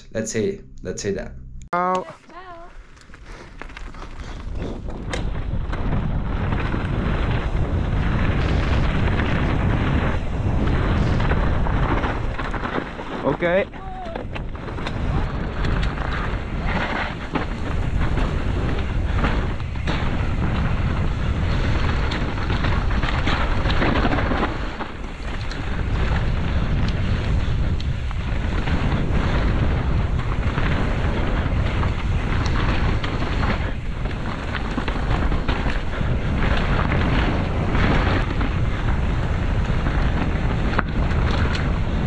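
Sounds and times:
bike knocking and rattling: 2.3s - 42.0s
wind rushing over microphone: 2.5s - 42.0s
tyres crunching over gravel: 2.9s - 5.0s.

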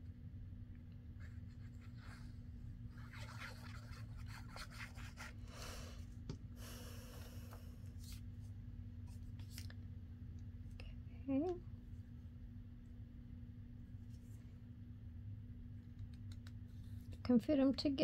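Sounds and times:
steady low hum: 0.0s - 18.0s
paper rubbing and rustling: 1.2s - 5.4s.

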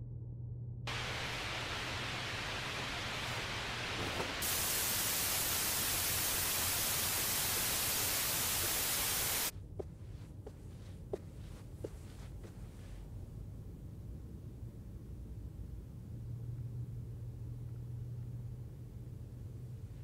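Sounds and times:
television static hiss: 0.9s - 9.5s.

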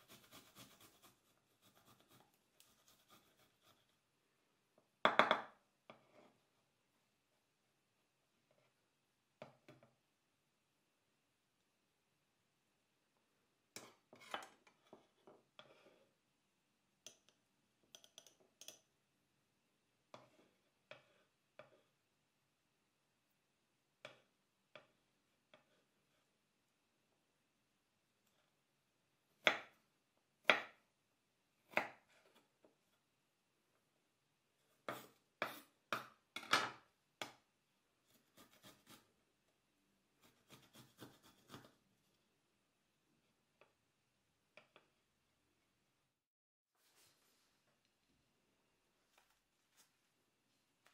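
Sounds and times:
knife chopping on wooden board: 29.4s - 29.7s, 34.9s - 36.2s, 40.5s - 41.7s.

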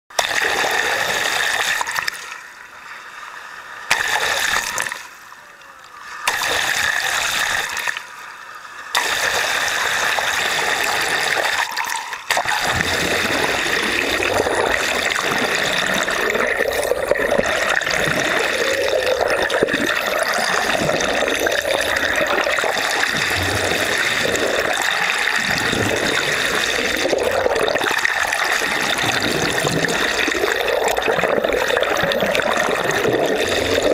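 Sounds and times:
water splashing and trickling: 8.9s - 33.9s.

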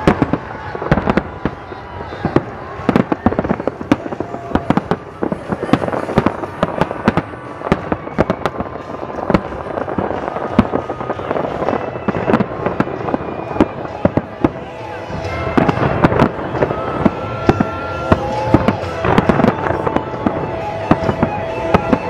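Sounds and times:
fireworks crackling: 0.0s - 22.0s.

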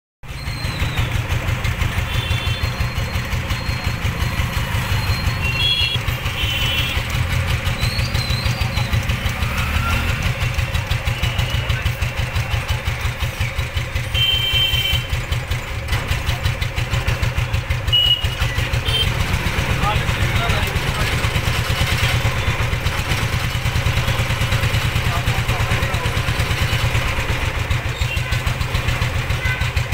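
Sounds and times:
vehicle engine idling: 0.3s - 29.9s.

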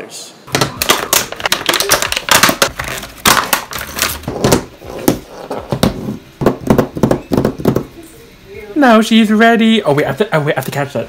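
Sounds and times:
plastic packaging crackling: 0.5s - 4.7s.

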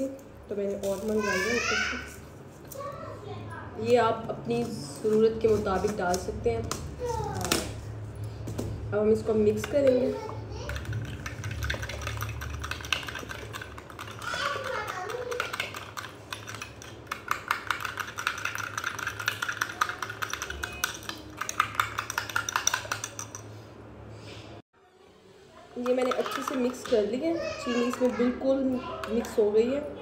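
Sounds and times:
spoon beating mixture in a bowl: 9.4s - 23.6s, 25.8s - 29.7s.

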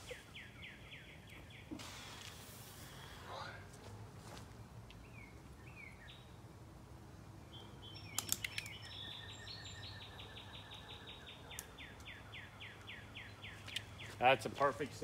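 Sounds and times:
short bird calls: 0.0s - 3.6s
songbird whistling: 7.5s - 14.2s
sharp clicks: 8.1s - 8.9s, 11.5s - 12.1s.

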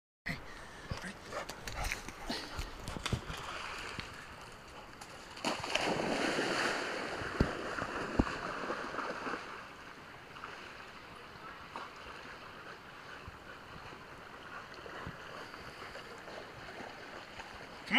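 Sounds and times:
dog splashing through water: 1.8s - 9.7s.

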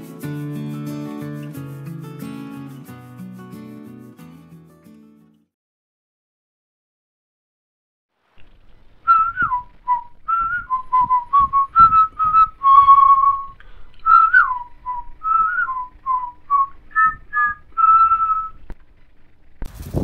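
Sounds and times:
light rhythmic accompaniment: 0.0s - 5.4s
whistled tune: 9.0s - 18.6s.

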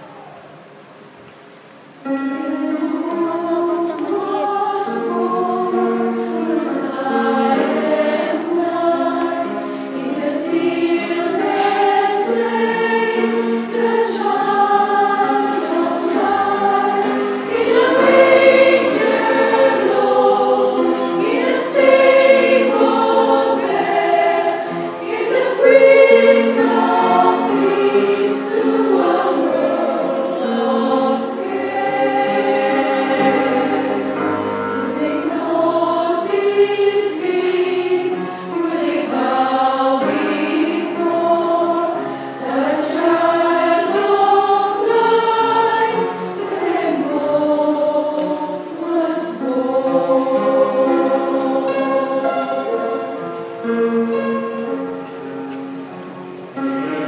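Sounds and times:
mixed choir singing: 2.0s - 57.0s.

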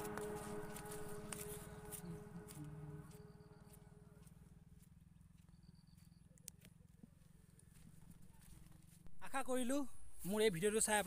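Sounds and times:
low steady rumble: 9.0s - 10.8s.

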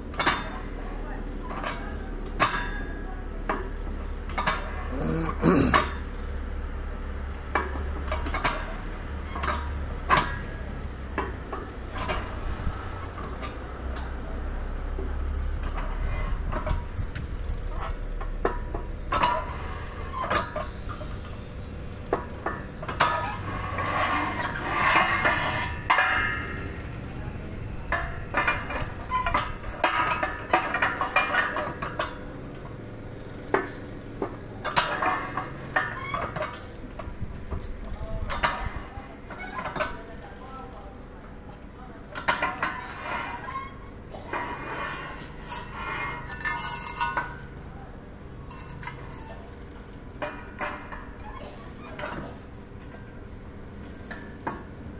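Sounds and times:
metal-on-metal scraping: 17.6s - 21.4s, 22.1s - 32.2s, 33.5s - 40.6s, 42.2s - 47.4s.

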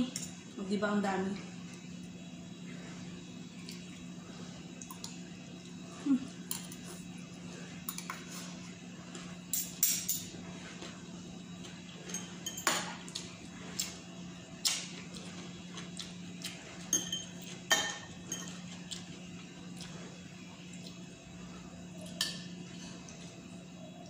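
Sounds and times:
low steady hum: 0.0s - 24.0s
cutlery clinking on plates: 16.9s - 18.6s.

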